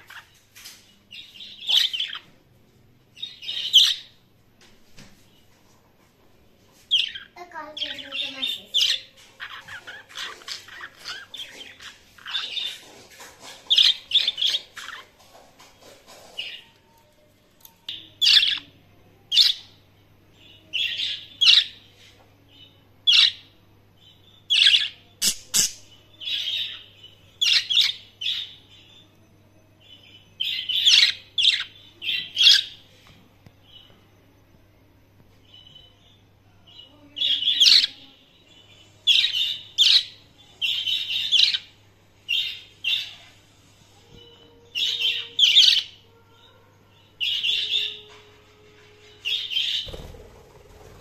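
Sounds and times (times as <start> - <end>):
budgerigars chirping and warbling: 0.0 - 0.4, 1.1 - 2.3, 3.2 - 4.2, 6.9 - 16.7, 17.9 - 19.8, 20.7 - 21.8, 24.5 - 28.9, 30.0 - 32.8, 36.8 - 38.1, 38.7 - 46.0, 47.0 - 48.2, 49.1 - 51.0.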